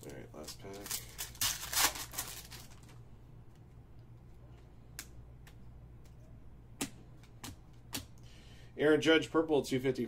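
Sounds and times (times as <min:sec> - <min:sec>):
foil wrapper crinkling: 0:00.0 - 0:03.0.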